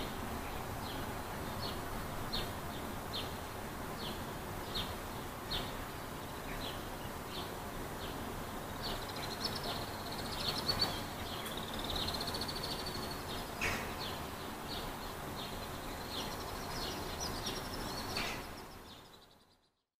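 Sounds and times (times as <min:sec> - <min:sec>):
distant background hum: 0:00.0 - 0:19.6
small birds chirping: 0:00.0 - 0:19.9
bird trill: 0:08.8 - 0:13.9, 0:15.4 - 0:19.8.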